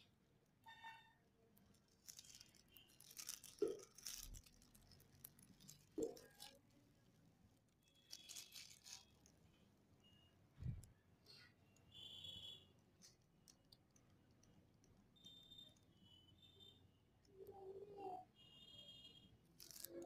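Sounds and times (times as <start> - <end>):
plastic gloves crinkling: 1.5 - 9.5, 19.4 - 20.0.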